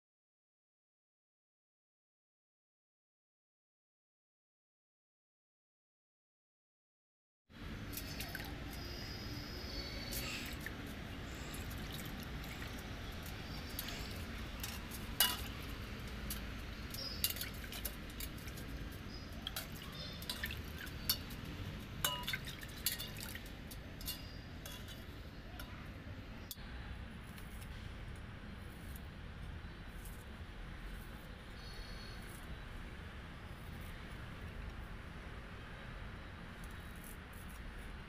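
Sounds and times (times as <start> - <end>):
water sloshing and dripping: 7.8 - 9.0, 10.1 - 25.7
metal blade clinking against pot: 14.6 - 15.6, 16.3 - 18.4, 19.5 - 21.4, 22.0 - 25.8.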